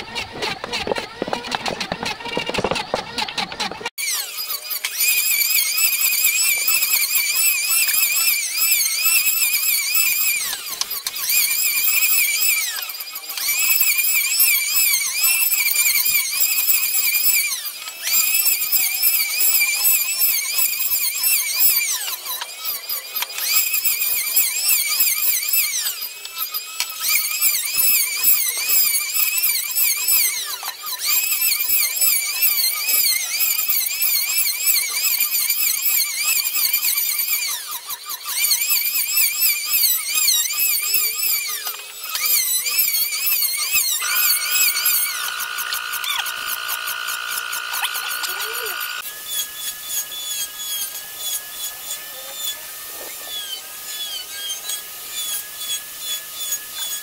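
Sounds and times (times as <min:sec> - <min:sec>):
electric planer whining: 0:00.0 - 0:57.0.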